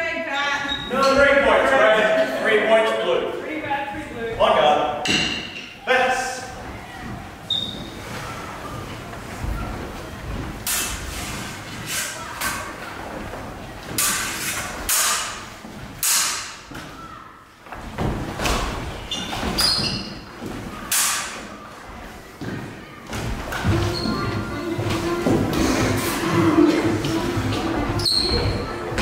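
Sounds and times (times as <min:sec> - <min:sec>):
feet stamping on wooden floor: 0:06.5 - 0:08.1, 0:22.4 - 0:29.0
sabre blades clashing: 0:16.0 - 0:16.6.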